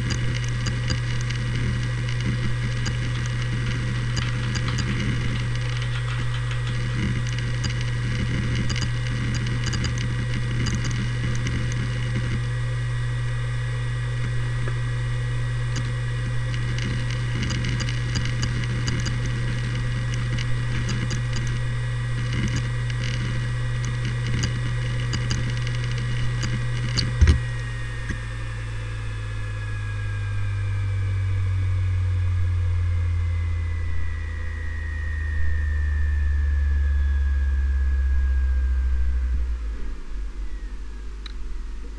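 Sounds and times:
hard drive heads clicking: 0.0 - 11.9, 22.2 - 27.4
hard drive spinning hum and whine: 0.0 - 41.9.

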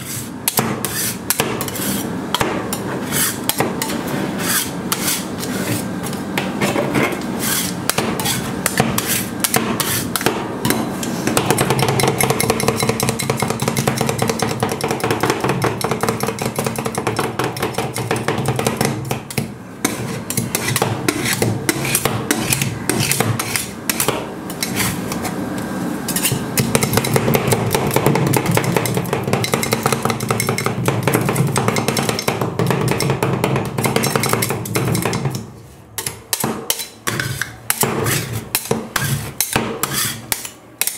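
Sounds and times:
metal spatulas clacking and scraping: 19.3 - 25.2, 26.1 - 40.9.

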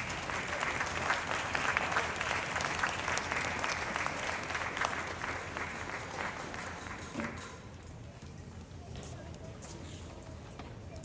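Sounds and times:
people clapping: 0.0 - 7.7.

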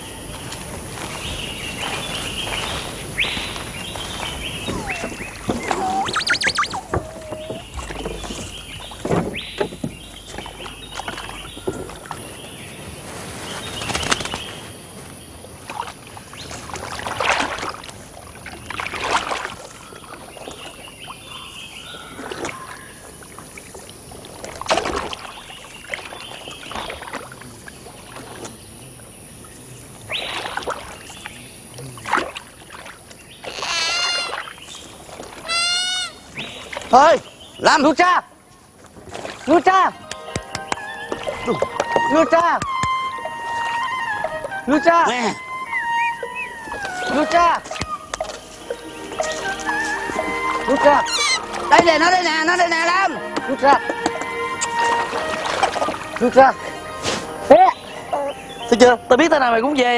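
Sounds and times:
bird calls: 0.0 - 17.0, 18.5 - 23.7, 33.0 - 38.0, 39.2 - 59.9
river water splashing: 0.0 - 59.9.

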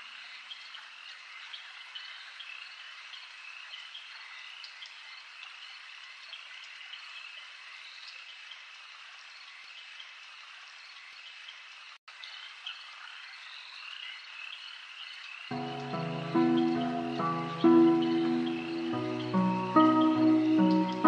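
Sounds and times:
frogs chirping: 10.9 - 21.0
crickets chirping: 15.5 - 21.0.

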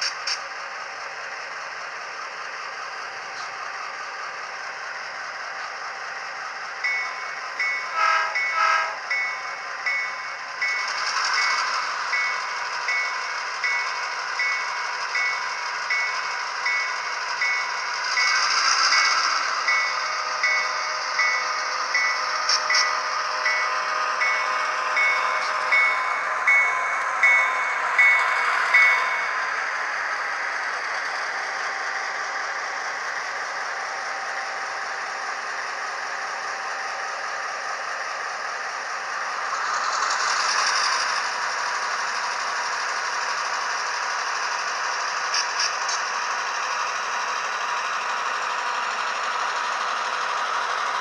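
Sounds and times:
diesel engine sound from small speaker: 0.0 - 51.0
locomotive bell ringing: 6.8 - 31.0
short horn blasts: 7.9 - 9.0.

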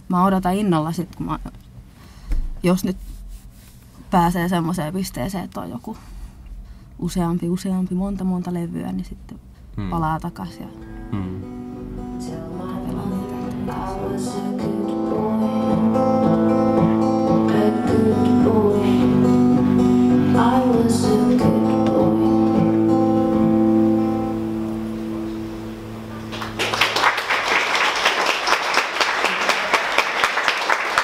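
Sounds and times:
acoustic guitar: 0.2 - 27.4
woman singing: 12.2 - 23.6
audience applause: 26.1 - 31.0.

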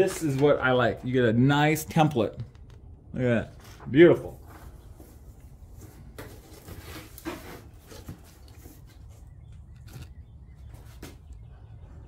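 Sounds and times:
cardboard rubbing and scraping: 4.5 - 11.2.

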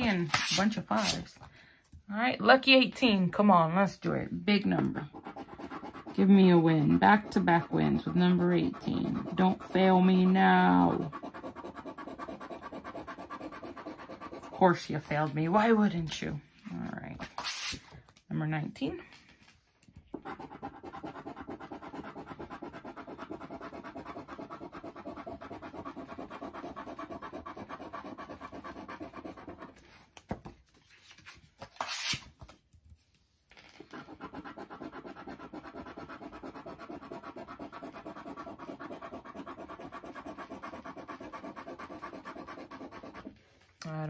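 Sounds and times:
scratching lottery ticket: 5.1 - 14.8, 20.2 - 29.8, 33.9 - 43.3.

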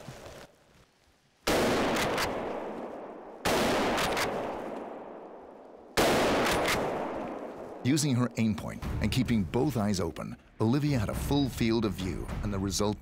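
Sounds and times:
rifle shots with echo: 1.5 - 7.8.

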